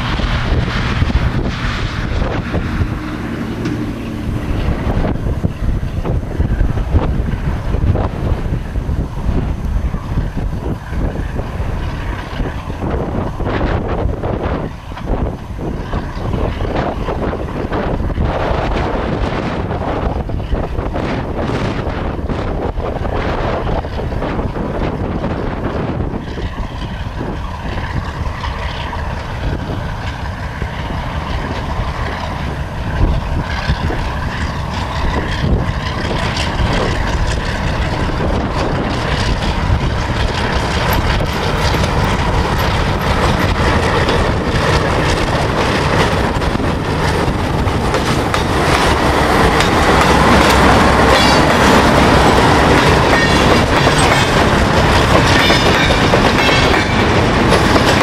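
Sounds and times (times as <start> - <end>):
diesel locomotive engine: 0.0 - 58.0
wheels clattering over rails: 23.6 - 58.0.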